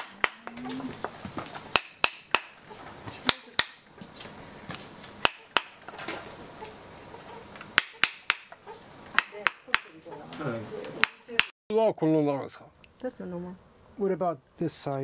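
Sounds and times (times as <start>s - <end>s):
wooden mallet striking chisel: 0.0s - 0.8s, 1.6s - 3.9s, 5.2s - 6.1s, 7.5s - 10.1s, 11.0s - 11.6s.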